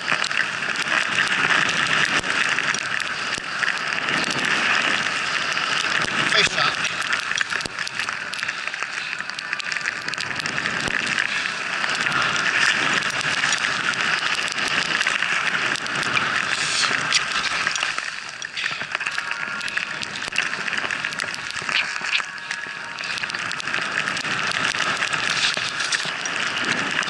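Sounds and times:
skis hissing through powder snow: 10.6 - 27.0.

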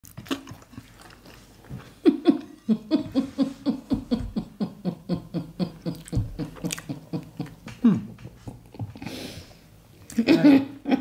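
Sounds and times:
woman laughing: 2.0 - 8.2, 10.1 - 11.0.

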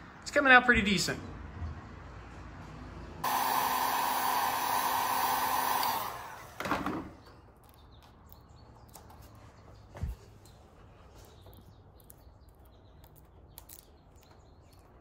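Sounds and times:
heat gun blowing: 3.2 - 7.2.

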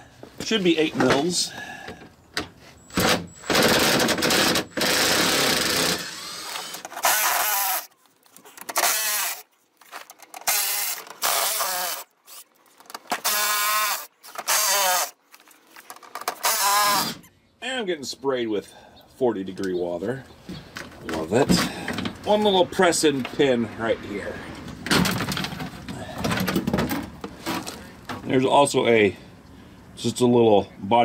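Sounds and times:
power tool motor whining: 2.9 - 7.9, 8.7 - 9.4, 10.4 - 12.4, 13.1 - 15.2, 16.3 - 17.2.

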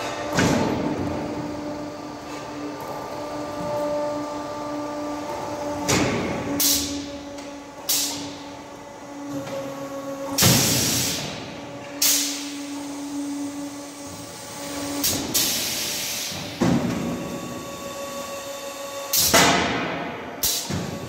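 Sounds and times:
machine motor hum: 0.0 - 21.0
pneumatic air hissing blasts: 6.0 - 7.1, 7.8 - 8.4, 10.4 - 12.9, 14.6 - 17.2, 20.4 - 21.0.

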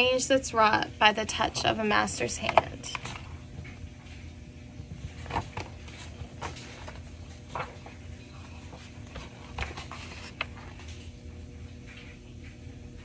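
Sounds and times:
steady low hum: 0.0 - 13.0
paper rustling: 5.0 - 11.2.

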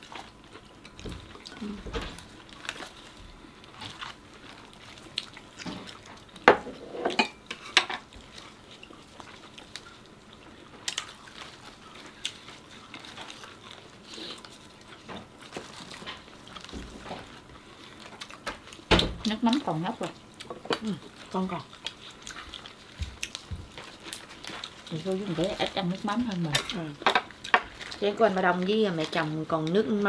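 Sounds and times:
utensils clinking against dishes: 6.5 - 8.0.

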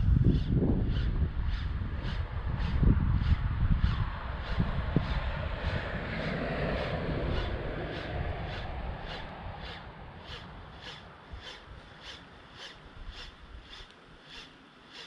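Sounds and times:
low wind: 0.0 - 15.0
fishing reel ticking: 7.3 - 15.0.

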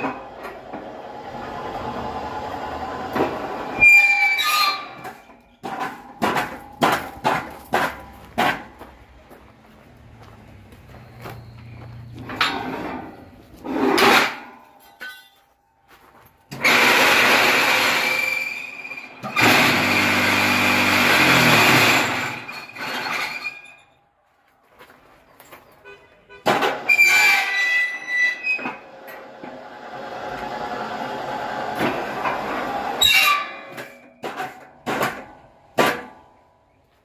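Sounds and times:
vibrator motors rattling: 16.5 - 23.4.

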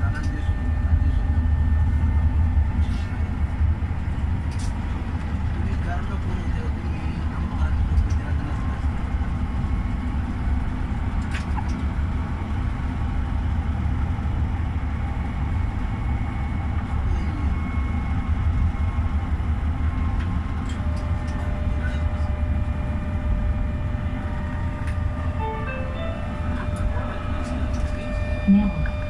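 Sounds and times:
tram rumbling on rails: 0.0 - 29.0
higher steady tone: 24.5 - 29.0.

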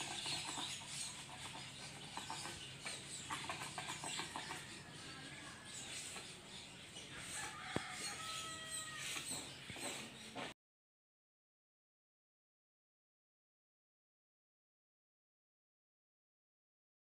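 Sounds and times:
chickens clucking: 0.0 - 10.5.

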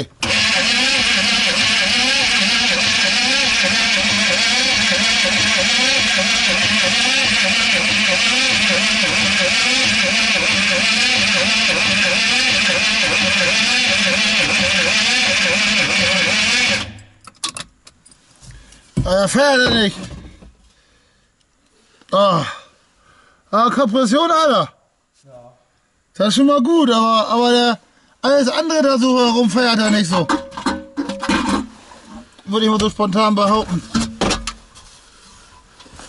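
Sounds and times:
diesel engine cranking without starting: 0.0 - 17.6.

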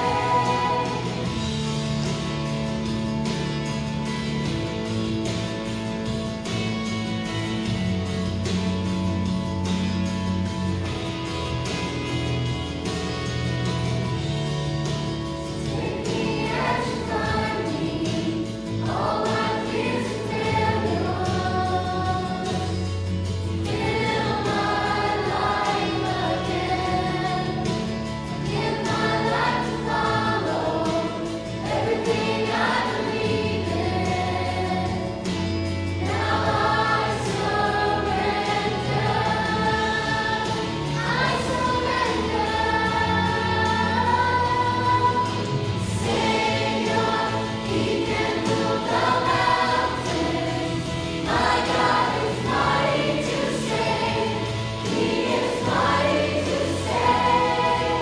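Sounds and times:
choir singing in unison: 0.0 - 2.5, 15.6 - 58.0
instrumental accompaniment: 0.0 - 58.0.

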